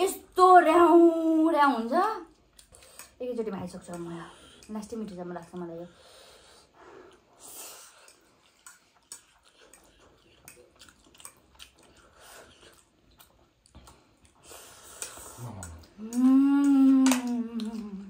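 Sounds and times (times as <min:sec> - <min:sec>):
slurping and chewing noodles: 0:03.9 - 0:16.9.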